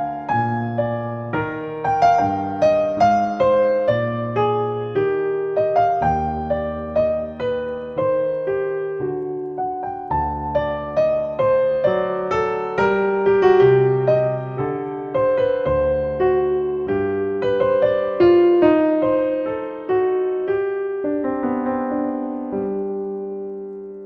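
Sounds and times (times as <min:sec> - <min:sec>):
piano music: 0:00.0 - 0:24.0.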